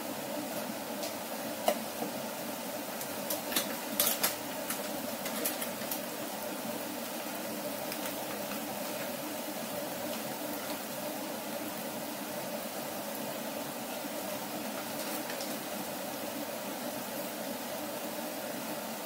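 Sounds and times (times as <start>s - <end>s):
tomatoes hissing in saucepan: 0.0s - 19.0s
sharp pops and crackles: 2.9s - 6.1s, 7.8s - 9.2s.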